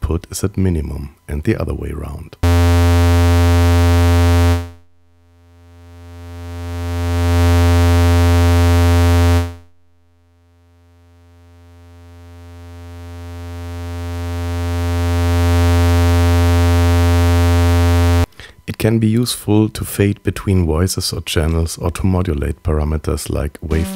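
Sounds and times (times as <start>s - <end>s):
low synthesizer tone: 2.4s - 10.3s, 12.6s - 18.3s, 23.6s - 23.9s.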